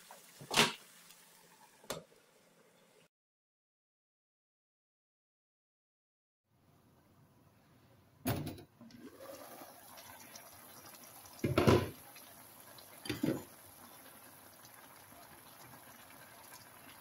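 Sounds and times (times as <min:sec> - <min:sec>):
vegetables sizzling in a pan: 0:00.0 - 0:02.6, 0:09.2 - 0:17.0.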